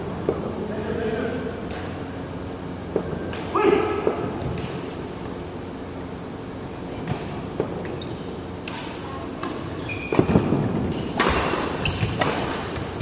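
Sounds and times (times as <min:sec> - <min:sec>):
racket hitting shuttlecock: 0:08.6 - 0:13.0.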